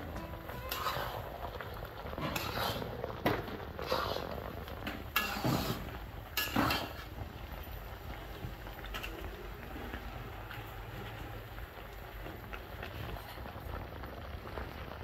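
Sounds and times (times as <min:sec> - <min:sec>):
spoon scraping a dish: 0:00.7 - 0:01.2, 0:02.2 - 0:02.9.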